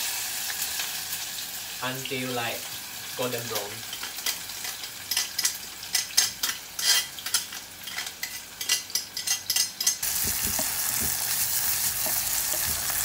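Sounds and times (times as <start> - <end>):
onion frying in oil sizzling: 0.0 - 13.0
wooden spatula scraping a pan: 10.1 - 13.0.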